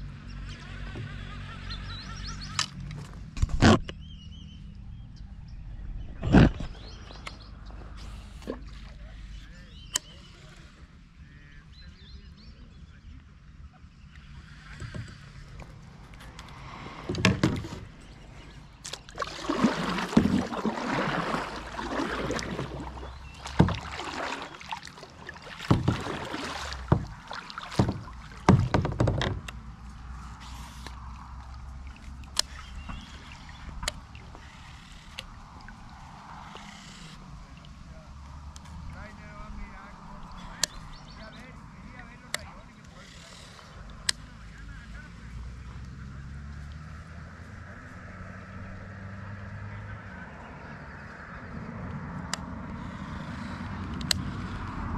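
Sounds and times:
kayak paddle splashing: 5.8 - 11.0, 14.0 - 54.9
sharp paddle knocks: 25.6 - 29.5.

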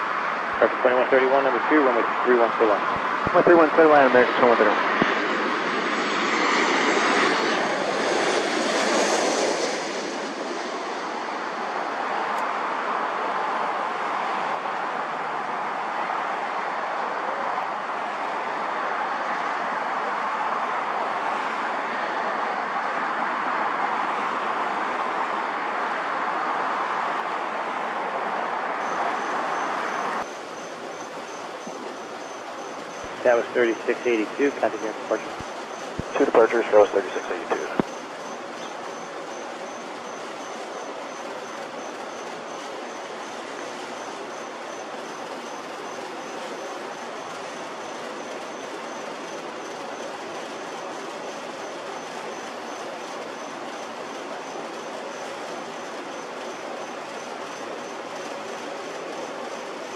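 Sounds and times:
jet airliner passing overhead: 0.0 - 59.9
insect chirping faintly: 28.8 - 59.9.

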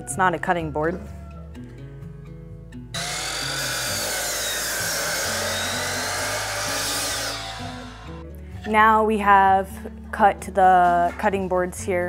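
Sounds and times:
background music: 0.0 - 12.0
miter saw cutting wood: 3.0 - 8.2.

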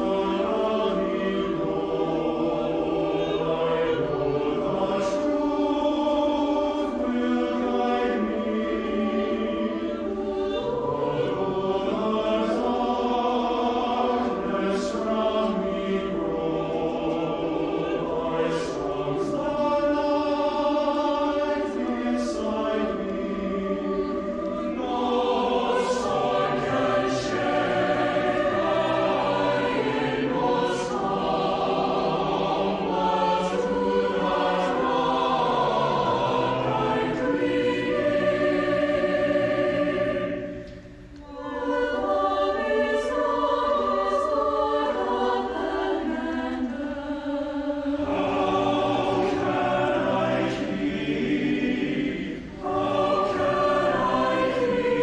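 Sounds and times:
mixed choir singing in harmony: 0.0 - 55.0.

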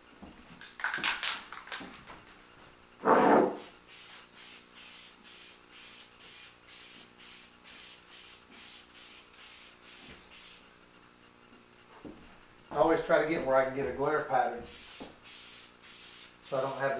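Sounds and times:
aerosol can hissing in pulses: 3.5 - 10.7, 14.7 - 16.9.

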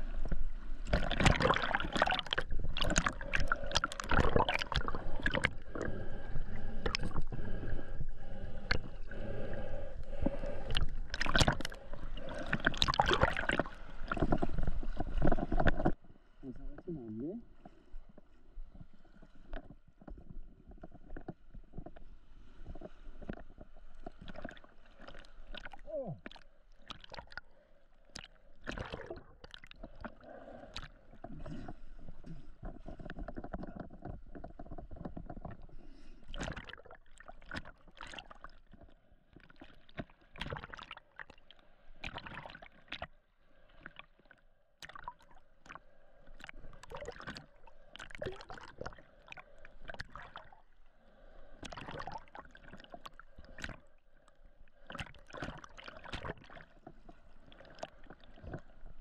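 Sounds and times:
water sloshing and gurgling: 0.0 - 59.0
water splashes and knocks: 0.2 - 5.5, 11.1 - 16.0, 36.3 - 41.4, 54.9 - 58.6.

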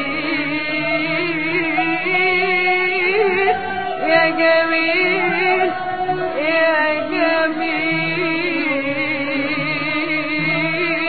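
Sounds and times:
arabic orchestra playing: 0.0 - 11.0
person singing: 0.0 - 11.0.

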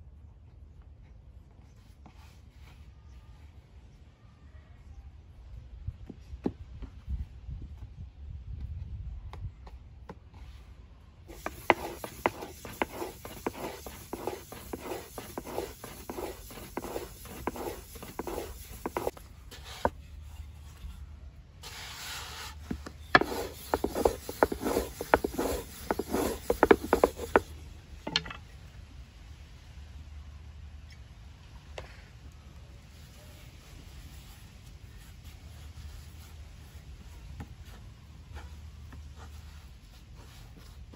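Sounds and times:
rolling pin rolling dough on board: 11.3 - 20.0, 22.6 - 27.5.

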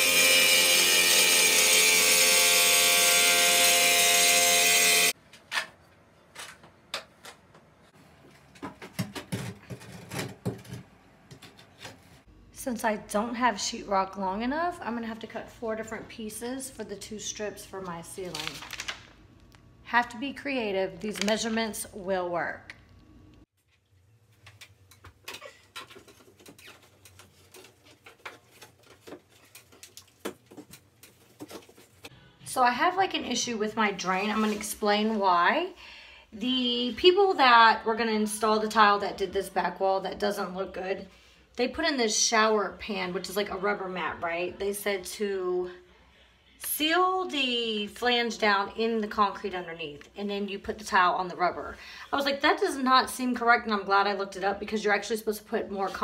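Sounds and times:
electric tile saw cutting: 0.0 - 5.2.

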